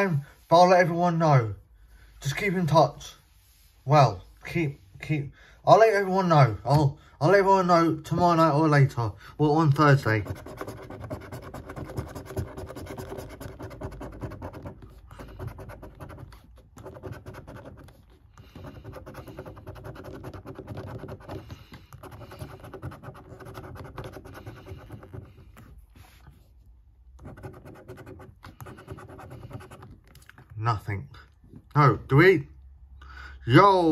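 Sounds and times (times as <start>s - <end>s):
coin scratching a scratchcard: 10.0s - 25.8s, 27.2s - 30.0s.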